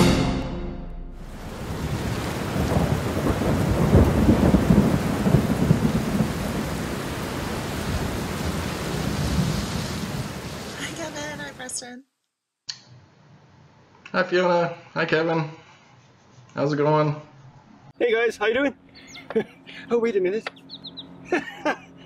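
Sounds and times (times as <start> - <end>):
low rolling thunder: 1.2 - 11.6
steady rain: 1.2 - 11.7.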